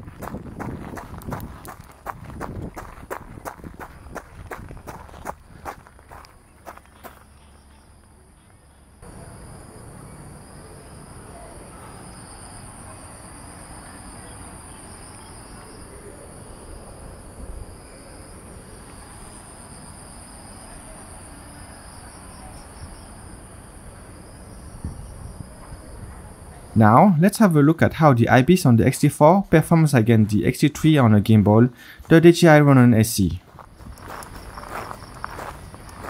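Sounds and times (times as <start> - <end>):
lower insect trill: 0.6 - 27.5, 33.5 - 36.0
insects trilling high: 8.8 - 29.8, 32.4 - 36.0.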